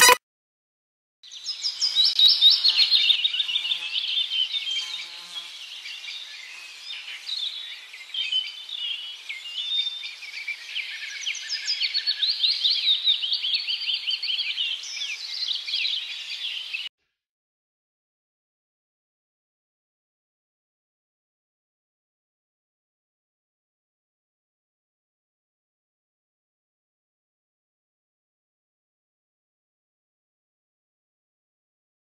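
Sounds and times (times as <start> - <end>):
small birds chirping: 1.2 - 16.9.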